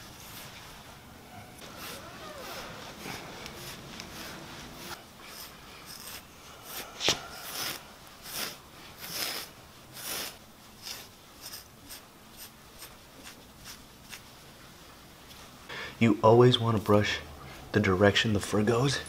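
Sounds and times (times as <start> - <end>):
brush rasping through dog fur: 1.6 - 14.2.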